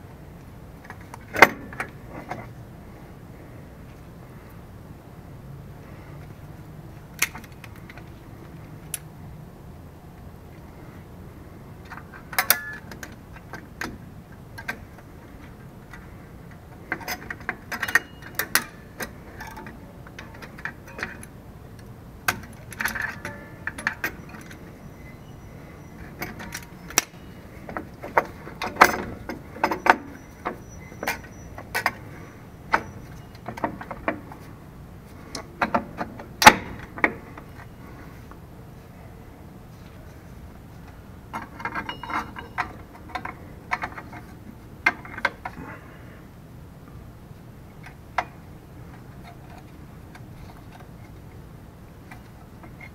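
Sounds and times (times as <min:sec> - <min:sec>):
metal brake parts clinking: 0:11.8 - 0:13.9, 0:16.8 - 0:21.4, 0:22.2 - 0:34.5, 0:41.3 - 0:45.8.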